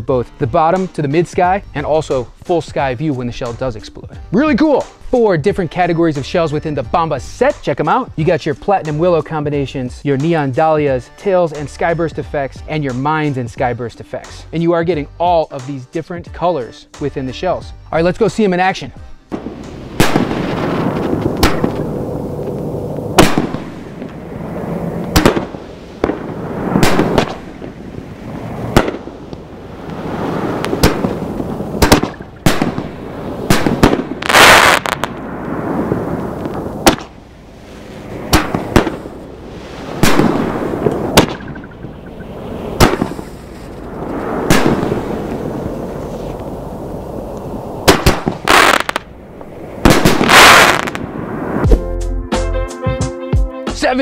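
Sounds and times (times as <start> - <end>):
firework shell reports: 0.0 - 49.1, 49.8 - 51.2
firework hissing: 19.4 - 51.7
loud firework crackling: 19.4 - 51.7.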